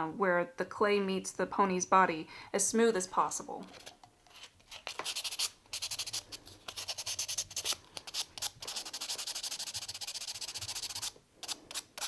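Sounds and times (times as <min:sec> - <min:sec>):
sandpaper rubbing by hand: 0:04.8 - 0:12.0.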